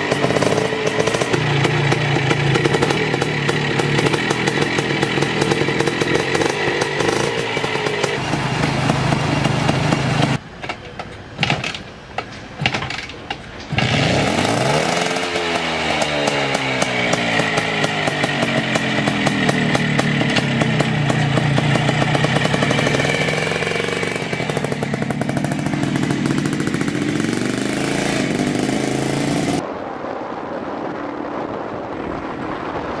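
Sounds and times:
two-stroke motorcycle engine revving: 0.0 - 10.4, 13.7 - 29.6.

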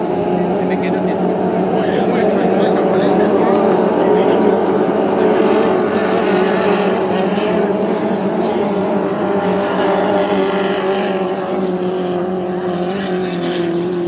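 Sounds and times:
racing boat engines droning: 0.0 - 14.0.

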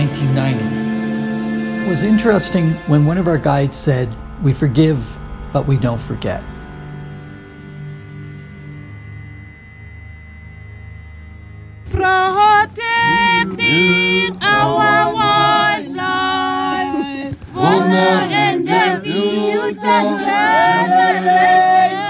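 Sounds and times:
low dark instrumental drone: 0.0 - 22.0
group singing a cappella: 12.0 - 22.0.

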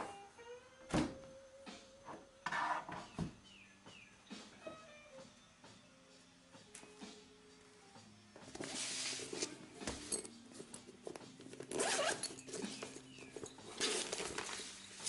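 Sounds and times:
bag rustling: 8.6 - 15.0
bag zipper being pulled open: 11.6 - 12.9.

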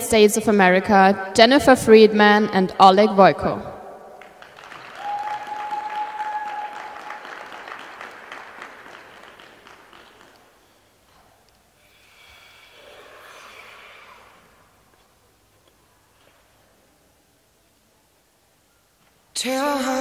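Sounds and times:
audience applause: 4.2 - 10.7.

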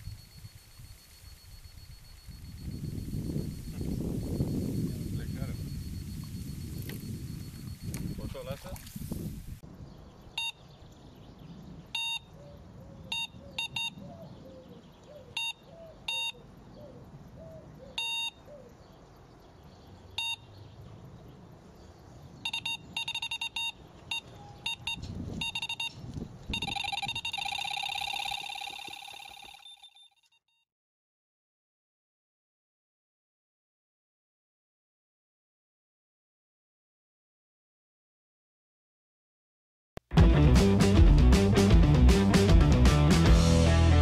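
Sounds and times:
electronic bite alarm beeping: 0.0 - 8.8, 10.4 - 10.7, 12.0 - 12.4, 13.1 - 14.0, 15.4 - 16.4, 18.0 - 18.4, 20.2 - 20.5, 22.4 - 30.4.

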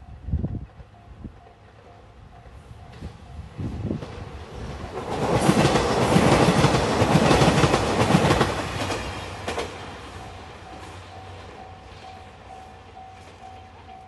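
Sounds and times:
diesel train passing: 0.0 - 14.0
wheels clacking over rail joints: 4.8 - 12.3.

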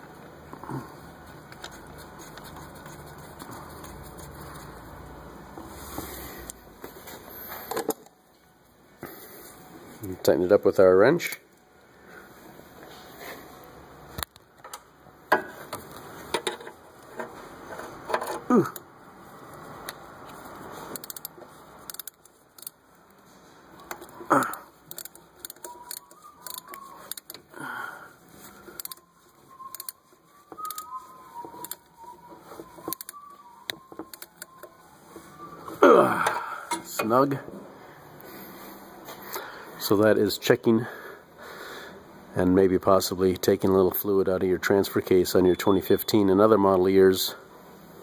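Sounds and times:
ratchet wrench clicking: 21.0 - 22.8, 24.9 - 27.4, 28.7 - 29.0, 29.7 - 30.0, 30.6 - 30.9.

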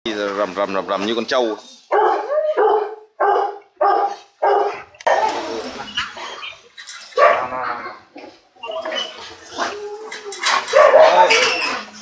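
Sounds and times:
dog barking: 1.9 - 5.3, 7.2 - 7.5, 10.7 - 11.5.

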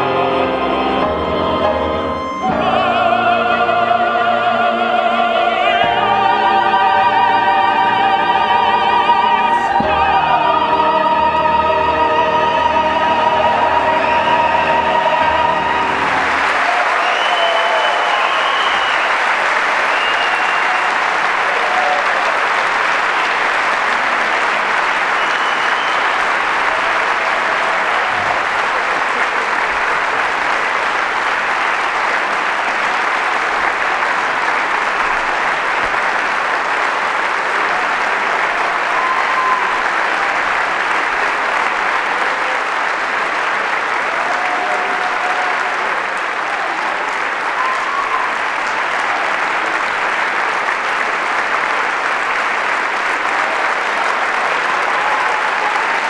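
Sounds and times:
audience applauding: 0.0 - 56.0
short calls from audience: 15.6 - 30.6.

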